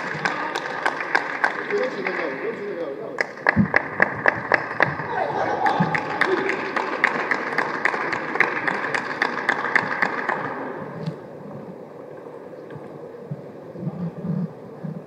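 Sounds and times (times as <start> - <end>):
people clapping: 0.0 - 11.2.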